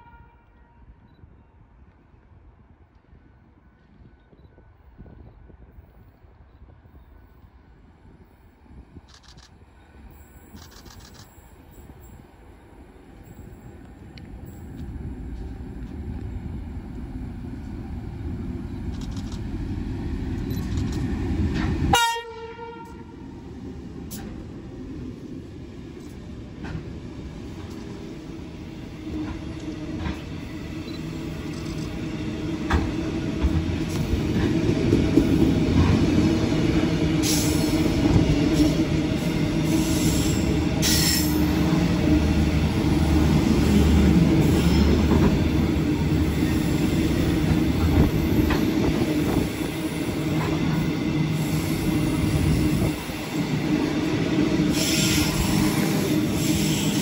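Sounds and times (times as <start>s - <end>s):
train horn blast: 0.0s - 1.5s, 21.9s - 23.3s, 54.7s - 57.0s.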